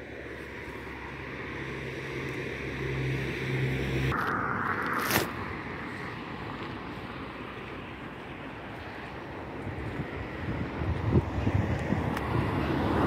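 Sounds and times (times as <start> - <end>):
road rush: 0.0 - 13.0
vehicle engine hum: 0.0 - 13.0
wind on microphone: 9.4 - 13.0.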